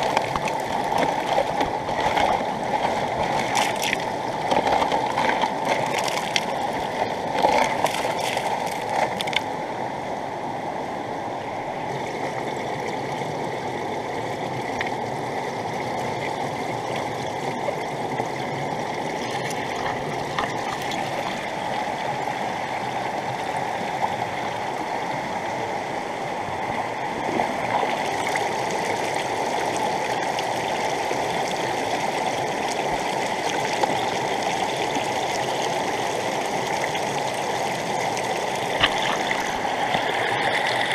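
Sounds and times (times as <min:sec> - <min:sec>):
water pouring from hose: 0:00.0 - 0:09.4, 0:38.7 - 0:40.9
flowing river: 0:00.0 - 0:40.9.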